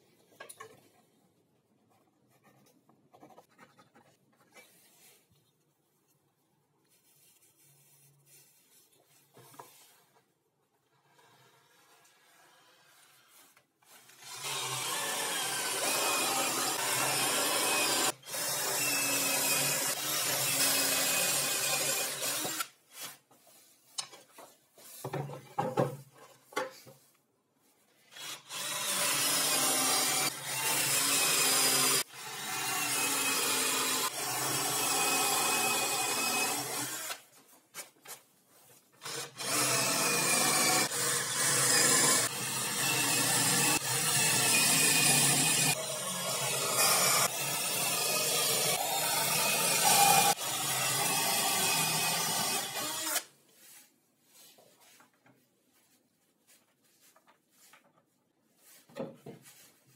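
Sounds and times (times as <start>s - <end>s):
knocks and scrapes: 23.0s - 27.2s, 56.6s - 59.9s.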